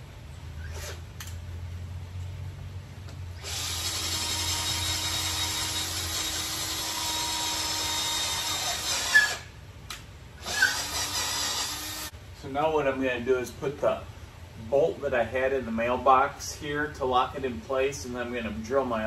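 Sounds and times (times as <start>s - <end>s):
cordless drill boring into wood: 3.4s - 9.5s, 10.4s - 12.1s.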